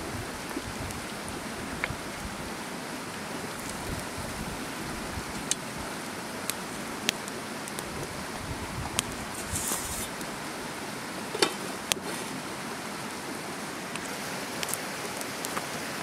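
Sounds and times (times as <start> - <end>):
wood fire hissing: 0.0 - 16.0
fire crackling snaps: 3.4 - 10.4, 11.2 - 13.2, 13.9 - 15.8.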